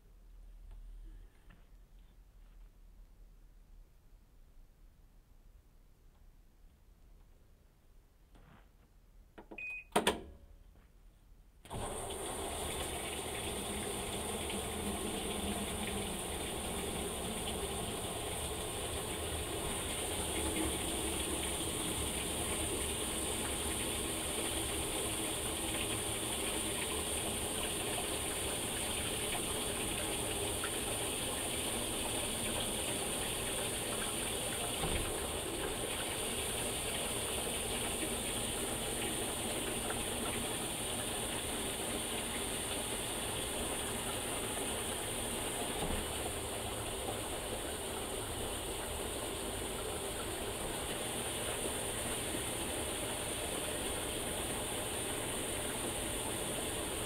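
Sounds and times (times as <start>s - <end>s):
washing machine beep: 9.5s - 10.1s
water rushing into tub: 11.7s - 57.0s.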